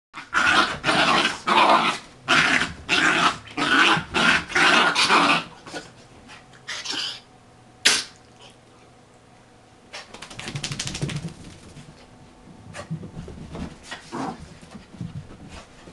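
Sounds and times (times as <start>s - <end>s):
puppies growling: 0.2s - 5.9s.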